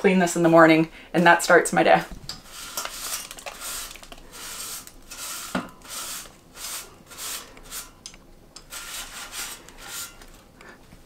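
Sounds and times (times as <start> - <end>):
paper towel rubbing basket: 2.4 - 8.0, 8.7 - 10.2.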